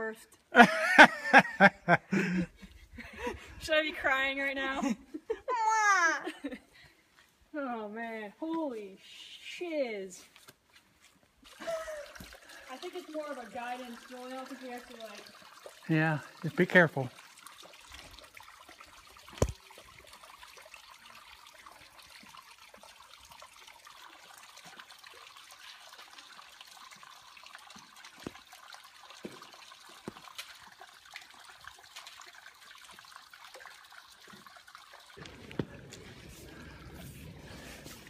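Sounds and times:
stream trickling over rock: 9.6s - 38.0s.

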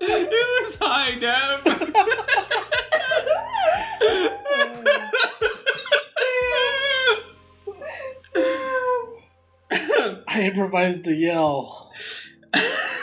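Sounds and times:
people laughing: 0.0s - 7.3s, 12.6s - 13.0s
wavering high laugh: 1.6s - 7.3s.

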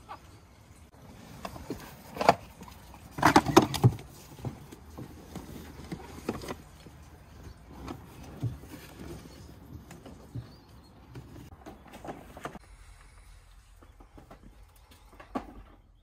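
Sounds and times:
objects knocking and clunking: 1.3s - 12.6s, 13.8s - 16.0s.

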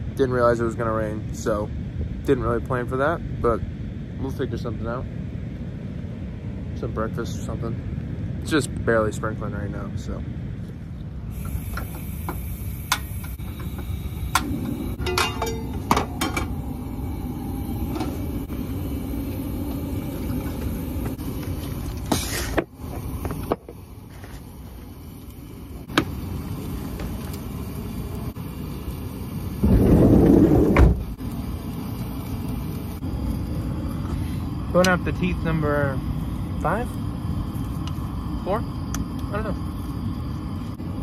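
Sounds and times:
burst of low noise: 11.2s - 41.0s.

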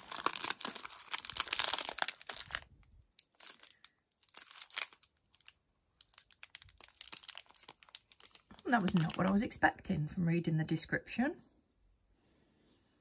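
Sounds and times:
wrapper crinkling and tearing: 0.0s - 9.4s.

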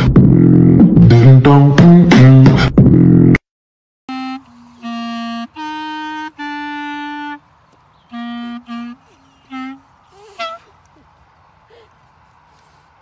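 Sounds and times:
clarinet playing slow tune: 4.1s - 10.8s.

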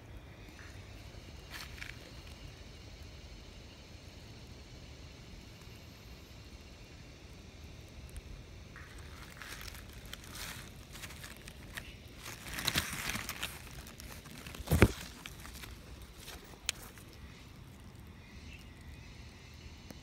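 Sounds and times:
dry leaves rustling: 8.8s - 18.8s.

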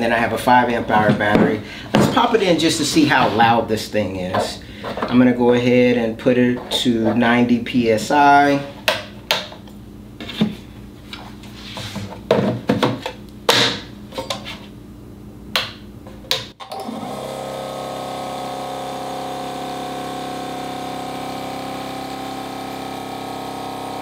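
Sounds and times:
air compressor motor hum: 16.6s - 24.0s.

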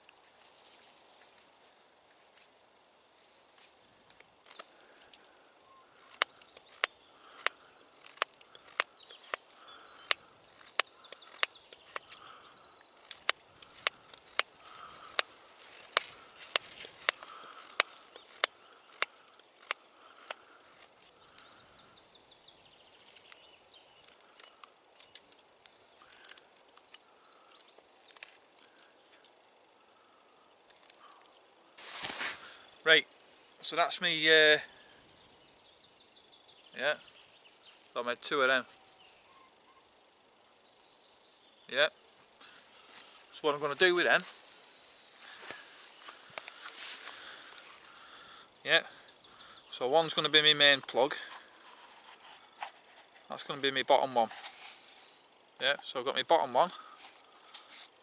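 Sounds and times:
knife carving wood clicks: 6.0s - 15.3s, 15.9s - 21.5s.

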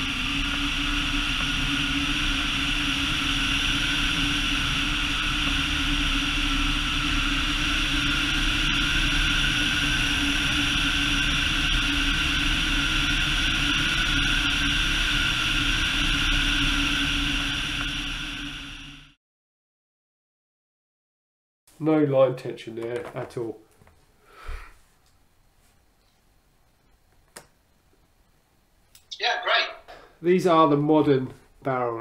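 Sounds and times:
propeller engine drone: 0.0s - 19.2s.

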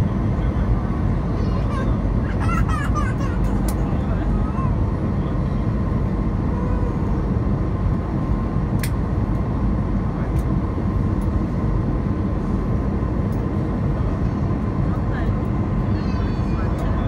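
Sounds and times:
airplane cabin engine rumble: 0.0s - 17.0s.

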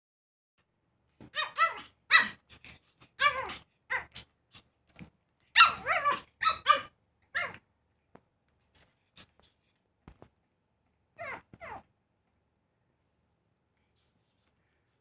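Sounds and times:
puppy yapping: 1.3s - 2.4s, 5.5s - 7.6s, 11.2s - 11.9s.

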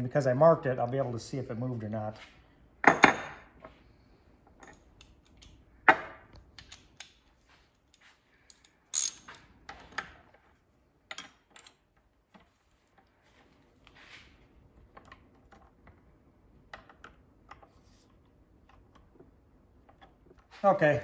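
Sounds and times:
wrench clanking on metal: 8.5s - 10.2s.

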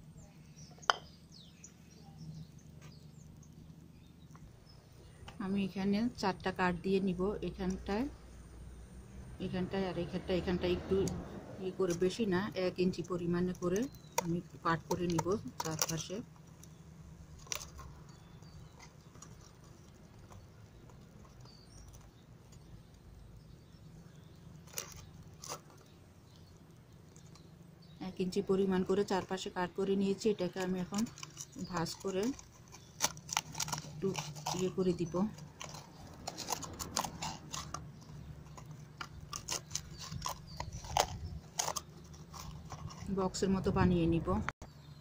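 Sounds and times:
scissors snipping cardboard: 31.0s - 43.0s.

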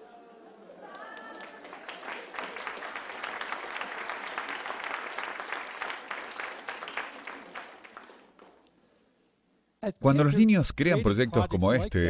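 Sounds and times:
large audience clapping: 0.6s - 8.8s.

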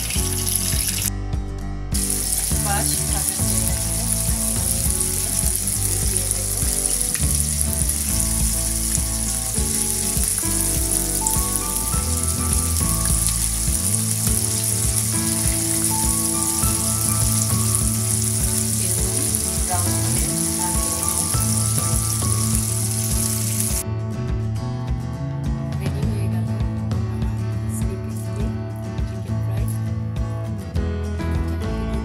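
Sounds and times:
chicken deep-frying in oil: 0.0s - 1.1s, 2.0s - 23.8s
background music: 0.0s - 32.0s.

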